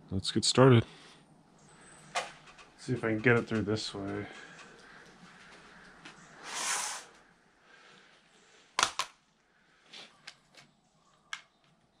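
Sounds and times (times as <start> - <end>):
sharp clicks: 2.1 - 5.2.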